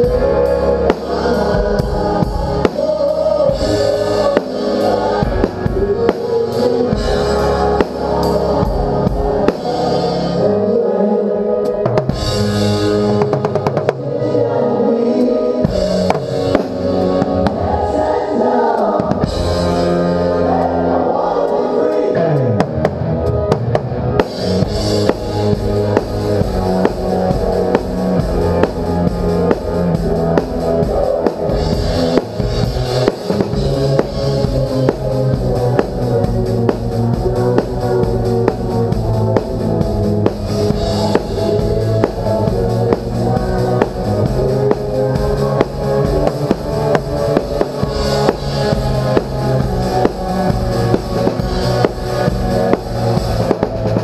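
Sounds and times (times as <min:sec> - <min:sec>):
live rock band playing: 0:00.0 - 0:10.7, 0:11.4 - 0:54.0
bass drum: 0:22.6 - 0:54.0.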